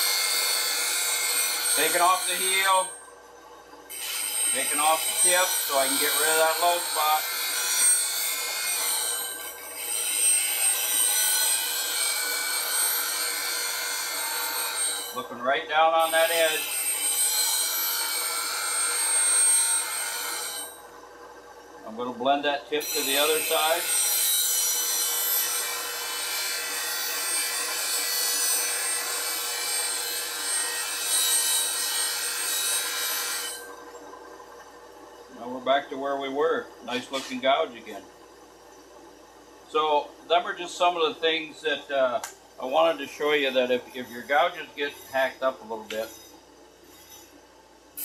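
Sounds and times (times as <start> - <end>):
bench grinder grinding steel: 0.0 - 3.0, 3.9 - 20.9, 22.8 - 34.0, 36.8 - 37.9, 42.6 - 48.0.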